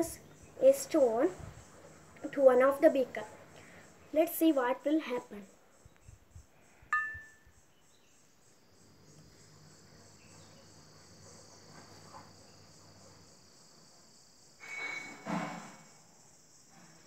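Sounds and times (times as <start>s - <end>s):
stone clinking against glass: 7.0s - 7.4s.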